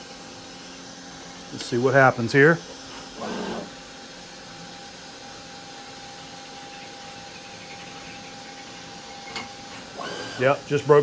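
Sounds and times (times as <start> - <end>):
mill spindle drilling steel: 2.5 - 3.8, 6.0 - 10.9.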